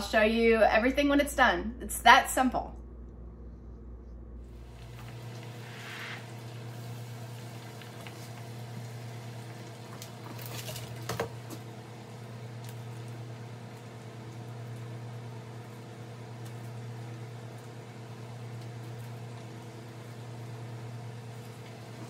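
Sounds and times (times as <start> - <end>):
low constant hum: 0.0 - 22.0
food frying in hot oil: 4.6 - 22.0.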